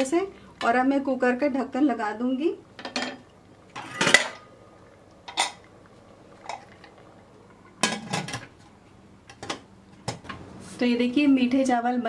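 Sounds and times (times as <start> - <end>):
metal lid clattering: 3.8 - 4.5, 5.3 - 5.7, 7.8 - 8.5.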